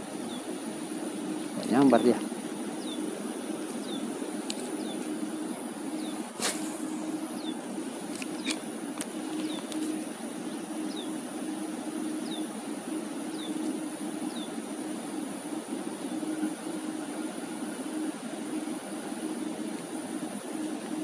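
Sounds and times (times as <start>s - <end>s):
distant engine hum: 0.0s - 21.0s
faint high steady tone: 9.2s - 21.0s.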